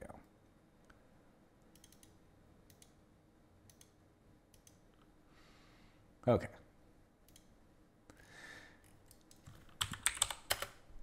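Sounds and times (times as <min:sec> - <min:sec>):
computer mouse clicks: 0:01.7 - 0:03.0, 0:03.6 - 0:05.1, 0:07.2 - 0:07.5, 0:08.9 - 0:10.8.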